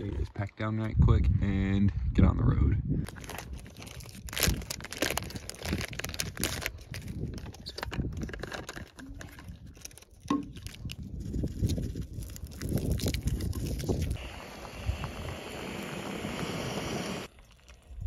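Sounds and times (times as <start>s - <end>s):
foil packet crinkling: 3.1s - 14.2s
plastic bottle clicks and knocks: 10.3s - 10.6s.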